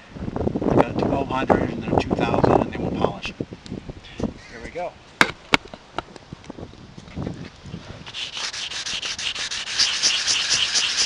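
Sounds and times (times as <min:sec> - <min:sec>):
hand sanding: 0:08.0 - 0:11.0.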